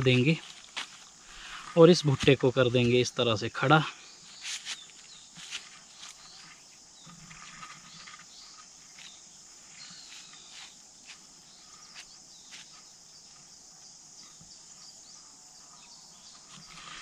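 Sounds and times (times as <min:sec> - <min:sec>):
corn husks and soil rustling: 0:00.0 - 0:12.9
insects chirring: 0:00.0 - 0:17.0.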